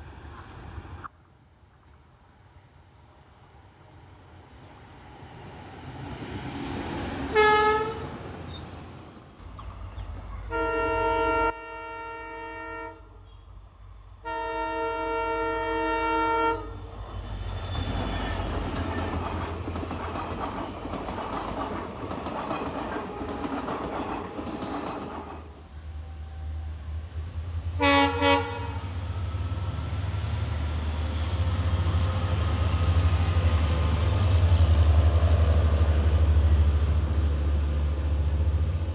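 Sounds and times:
passenger coaches rumbling past: 3.3 - 38.9
multi-tone train horn blasts: 7.3 - 8.1, 10.5 - 13.4, 14.2 - 16.9, 27.8 - 29.3
train horn short blast: 7.3 - 8.1, 10.5 - 13.2, 14.2 - 16.8, 27.8 - 28.9.

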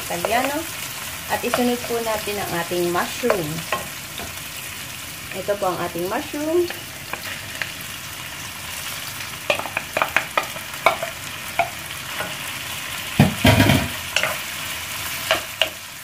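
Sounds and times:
food sizzling in oil: 0.0 - 16.0
wooden spoon clacking against pan: 9.5 - 12.4, 15.3 - 15.8
thump: 13.2 - 13.9.

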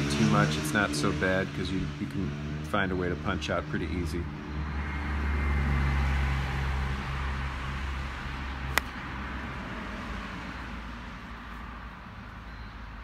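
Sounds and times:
road traffic drone: 0.0 - 13.0
golf club striking ball: 8.7 - 9.1.

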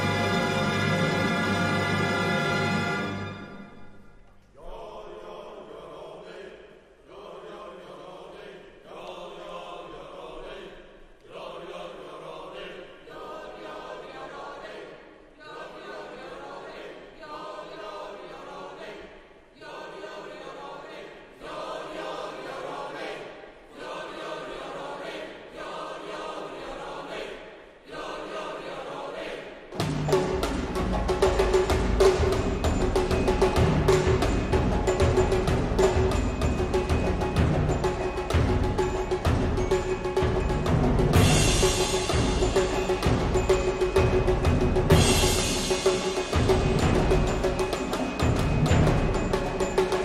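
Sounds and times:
orchestra playing softly: 0.0 - 4.5.

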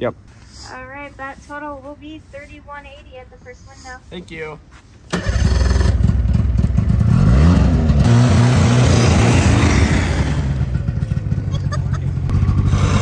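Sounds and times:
snowmobile engine revving: 5.1 - 13.0.

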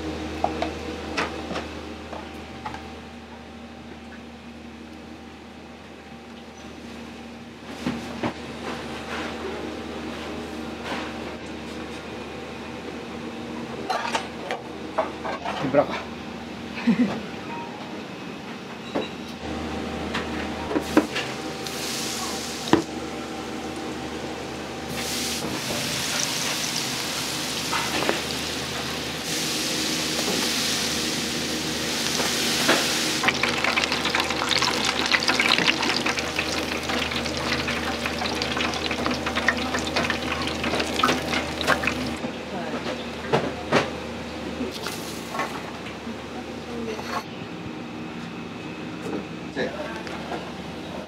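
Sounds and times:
food sizzling: 24.9 - 42.2.

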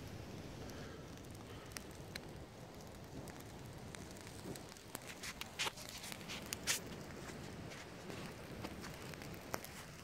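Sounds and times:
campfire crackling and popping: 0.0 - 10.0
crunches on dry leaf litter: 5.0 - 10.0.

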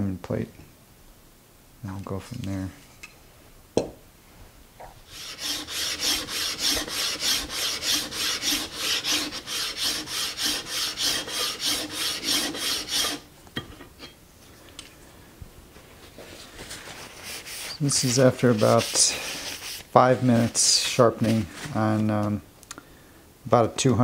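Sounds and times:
plane sole scraping on diamond plate: 5.1 - 13.2, 17.0 - 21.4.

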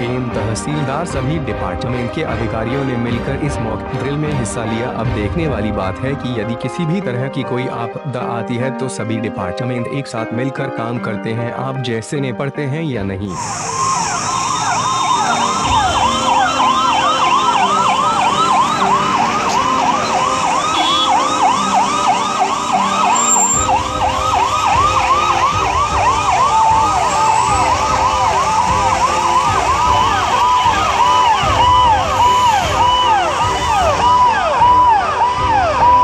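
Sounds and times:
vehicle engine noise: 13.3 - 34.2
emergency sirens yelping: 13.3 - 36.0.

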